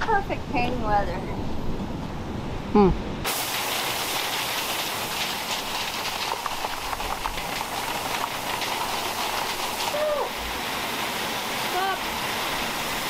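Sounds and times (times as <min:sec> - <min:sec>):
rain falling: 0:03.2 - 0:13.0
raindrops ticking on surfaces: 0:03.3 - 0:13.0.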